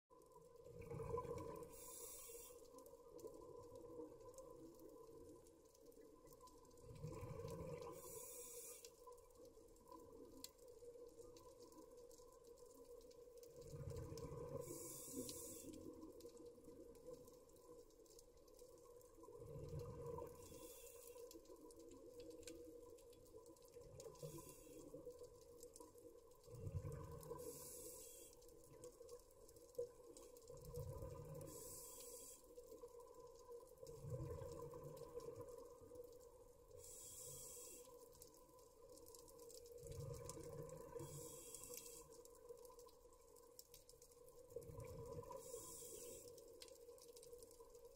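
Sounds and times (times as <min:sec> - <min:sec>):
faint steady hum: 0:00.1 - 0:47.9
regulator inhale hiss: 0:01.7 - 0:02.7, 0:07.9 - 0:09.0, 0:14.6 - 0:15.9, 0:20.4 - 0:21.2, 0:27.4 - 0:28.4, 0:31.4 - 0:32.5, 0:36.8 - 0:38.0, 0:41.0 - 0:42.1, 0:45.4 - 0:46.3.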